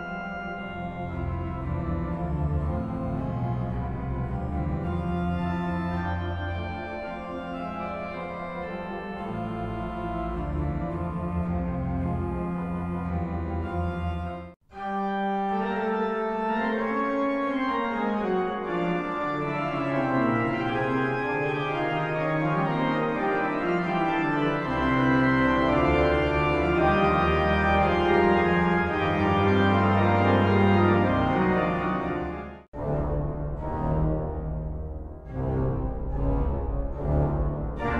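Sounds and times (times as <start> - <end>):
pipe organ chords: 0.0 - 37.9
deep organ bass notes: 17.7 - 37.9.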